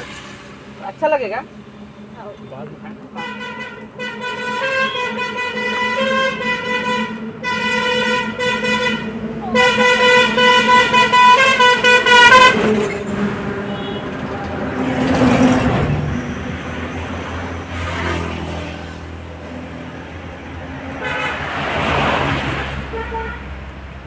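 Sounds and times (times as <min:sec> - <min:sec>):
low engine drone: 0:00.0 - 0:24.0
vehicles swooshing past: 0:00.0 - 0:24.0
vehicle horn tooting: 0:03.1 - 0:14.4, 0:21.0 - 0:21.5, 0:22.8 - 0:23.5.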